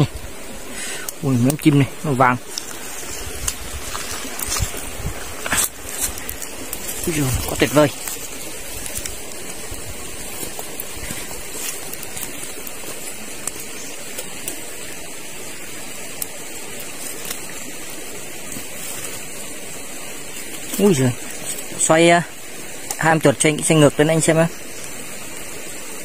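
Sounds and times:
stream rushing: 0.0 - 26.0
faint clicks: 1.0 - 1.6.

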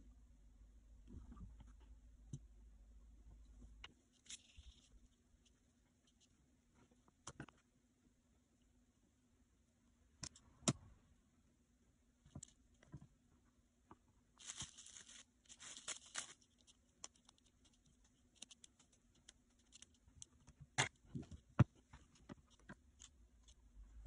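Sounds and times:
faint steady hum: 0.0 - 24.0
clay rustling and tearing: 4.0 - 7.6, 14.3 - 23.7.

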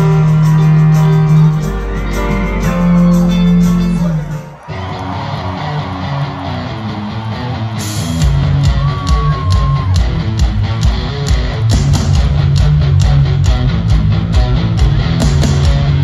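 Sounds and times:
electric guitar: 0.0 - 16.0
live rock band playing: 0.0 - 16.0
drums and cymbals: 7.7 - 16.0.

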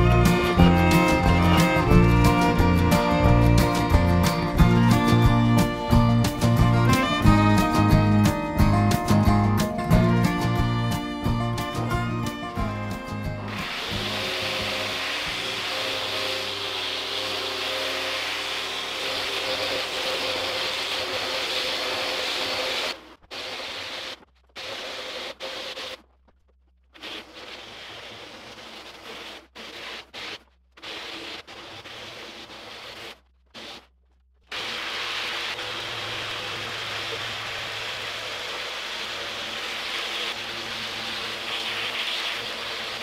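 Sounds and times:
faint motor hum: 13.4 - 23.2
orbital sander hissing: 13.4 - 26.0, 37.7 - 43.0.

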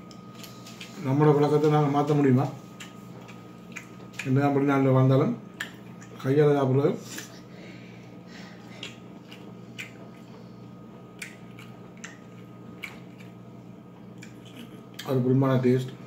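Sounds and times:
steady low hum: 0.0 - 16.0
chewing clicks and smacks: 2.7 - 4.5, 5.5 - 6.2, 8.6 - 15.2.

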